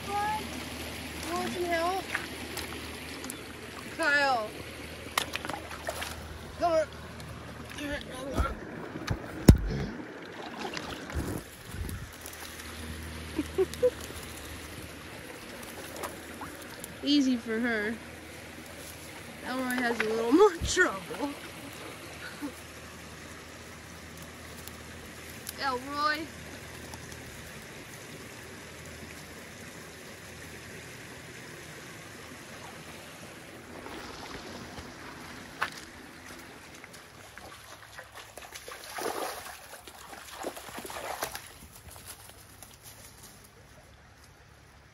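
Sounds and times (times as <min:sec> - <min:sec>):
creek running: 0:00.0 - 0:44.9
undergrowth brushing against camera: 0:10.7 - 0:12.9, 0:40.7 - 0:43.8.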